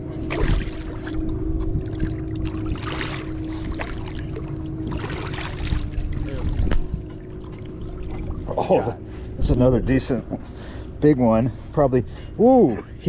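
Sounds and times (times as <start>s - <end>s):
fish splashing and thrashing: 0.0s - 9.3s
steady low hum: 0.0s - 13.0s
wind rumbling on microphone: 4.8s - 7.2s.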